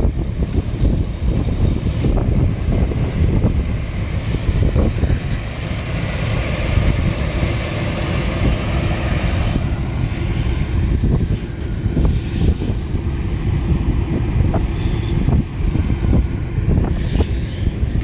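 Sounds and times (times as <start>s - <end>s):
combine harvester rumble: 0.0s - 18.0s
wind buffeting microphone: 0.0s - 18.0s.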